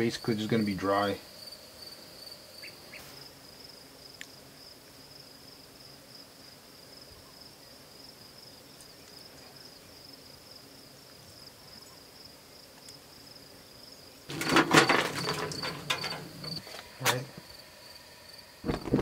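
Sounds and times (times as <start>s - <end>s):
crickets chirping: 0.0s - 19.0s
metallic clatter of camp stove: 14.3s - 17.3s.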